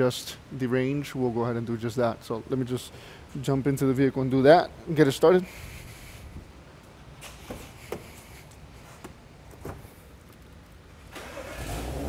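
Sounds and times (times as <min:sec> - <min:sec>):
car engine cranking and starting: 0:11.1 - 0:12.0.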